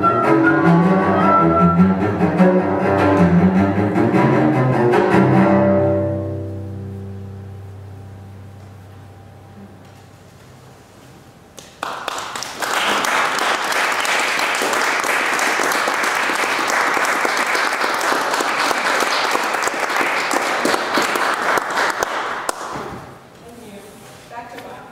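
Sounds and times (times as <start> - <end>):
audience applauding: 11.6 - 22.8.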